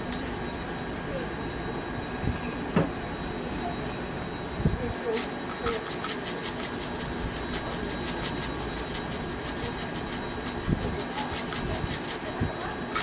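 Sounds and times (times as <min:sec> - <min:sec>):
plastic gloves crinkling: 0:05.0 - 0:13.0.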